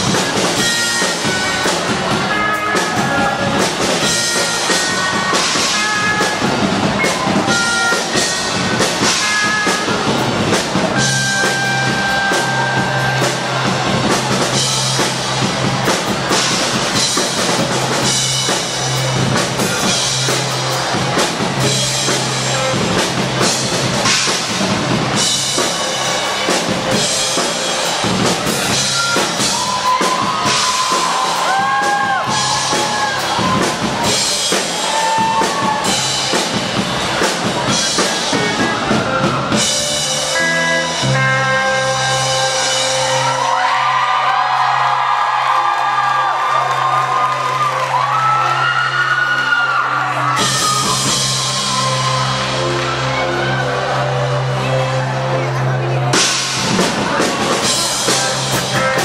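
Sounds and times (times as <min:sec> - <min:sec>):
electric bass: 0:00.0 - 0:48.8, 0:49.8 - 0:59.0
drum kit: 0:00.0 - 0:59.0.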